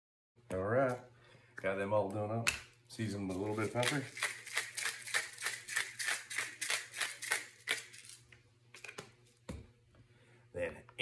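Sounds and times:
pepper mill grinding: 3.0s - 8.9s.

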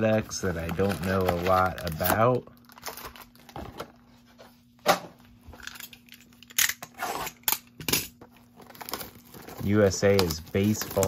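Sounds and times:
cardboard and foil rustling: 0.0s - 4.4s, 8.2s - 11.0s.

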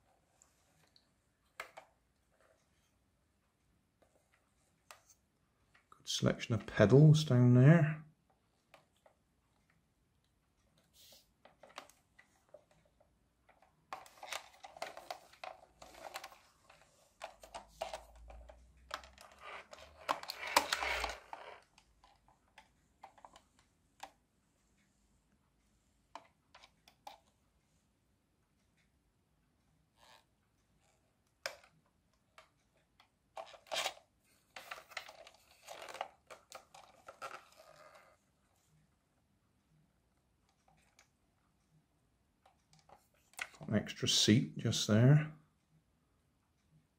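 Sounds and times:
fingers handling plastic toy: 0.0s - 3.0s, 10.8s - 24.2s, 26.1s - 27.4s, 30.0s - 38.2s, 42.4s - 43.7s
rustling and crinkling scrapes: 13.9s - 22.2s, 33.4s - 38.7s.

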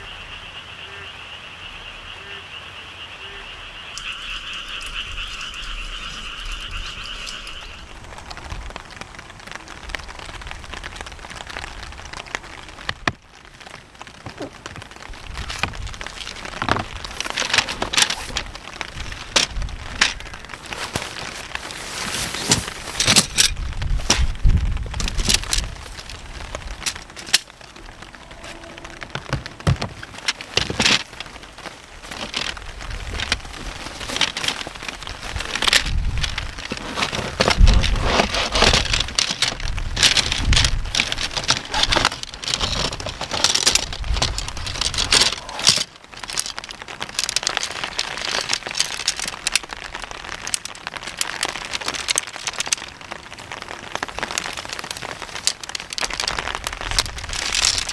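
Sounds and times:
tree frog trilling: 0.0s - 8.1s
nylon sacks rustling and crinkling: 4.2s - 57.9s.

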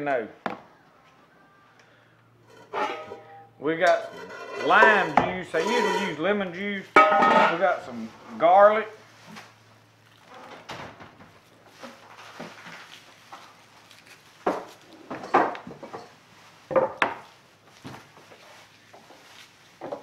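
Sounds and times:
papery rustling: 11.3s - 15.0s.

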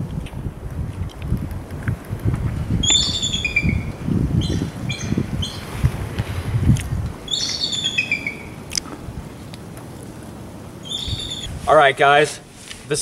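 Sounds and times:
low rumbling noise: 0.0s - 12.6s
eagle chittering calls: 2.8s - 5.7s, 7.2s - 8.7s, 10.8s - 11.6s.

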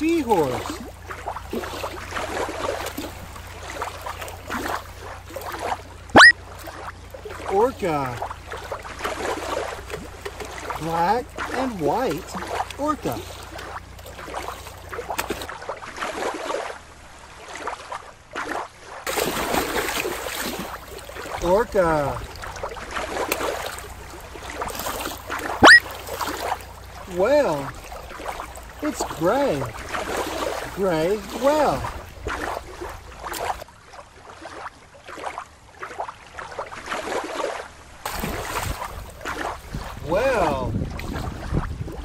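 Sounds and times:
toy splashing in water: 0.0s - 16.4s, 18.4s - 21.4s, 22.2s - 33.7s.

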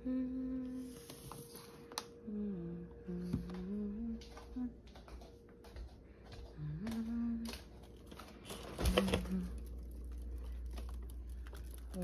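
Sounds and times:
person humming: 0.0s - 1.1s, 2.2s - 4.7s
freezer humming: 0.0s - 12.0s.

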